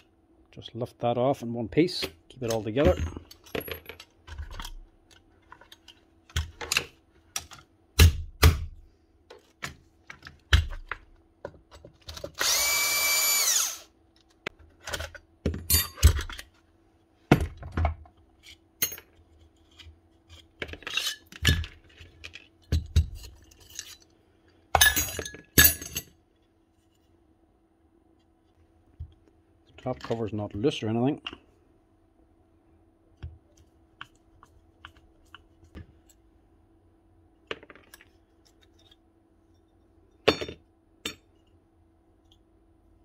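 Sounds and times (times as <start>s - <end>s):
tool parts clicking and knocking: 1.9s - 8.6s
small power tool running: 12.4s - 13.9s.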